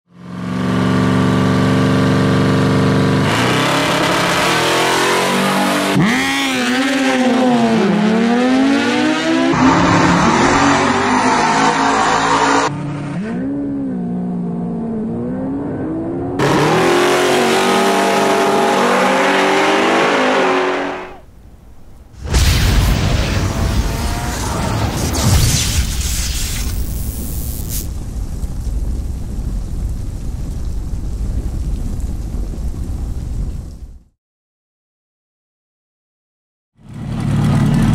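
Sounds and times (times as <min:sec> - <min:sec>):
drag racing engines revving: 0:03.2 - 0:21.2.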